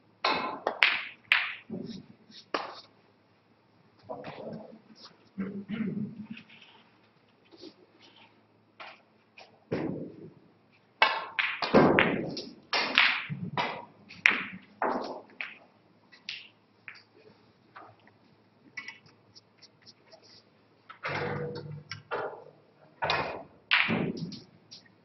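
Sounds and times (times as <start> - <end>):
snooker balls clacking: 0.2 - 2.9, 11.0 - 17.2, 20.9 - 24.9.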